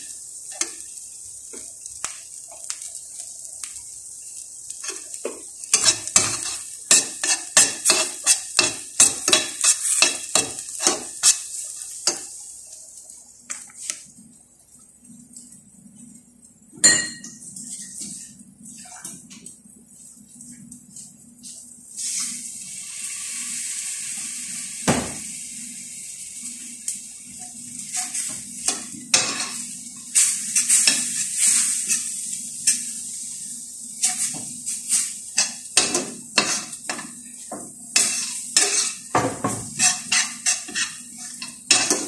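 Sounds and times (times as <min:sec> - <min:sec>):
water sizzling in hot pan: 0:00.0 - 0:14.2, 0:16.9 - 0:42.0
metal spoon scraping pan: 0:05.7 - 0:11.4, 0:35.4 - 0:37.0, 0:38.0 - 0:39.1, 0:39.7 - 0:42.0.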